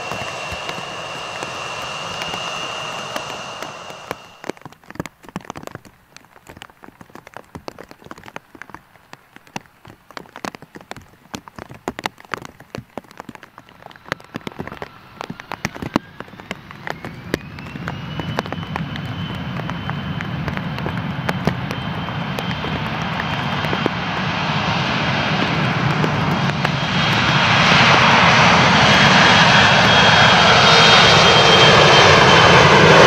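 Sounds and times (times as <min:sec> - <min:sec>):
jet engines spooling up: 0:00.0 - 0:04.6, 0:13.7 - 0:33.0
rain pattering: 0:00.0 - 0:30.0.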